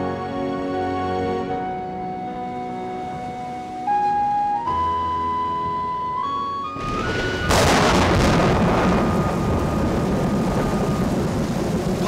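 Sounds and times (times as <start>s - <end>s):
flute melody: 0.0s - 9.8s
heavy rain: 6.8s - 12.0s
thunderclap: 6.8s - 12.0s.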